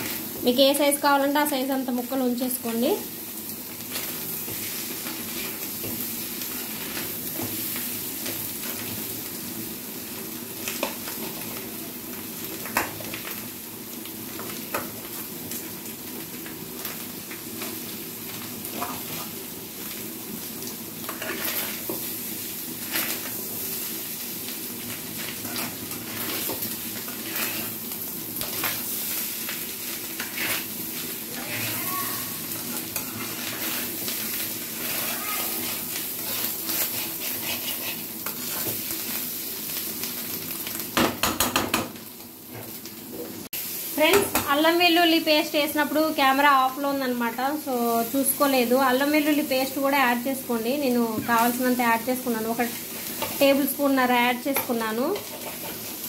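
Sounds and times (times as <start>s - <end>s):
food sizzling in pan: 0.0s - 56.0s
spatula scraping pan: 21.0s - 22.1s, 25.2s - 28.9s, 30.1s - 38.9s, 54.5s - 56.0s.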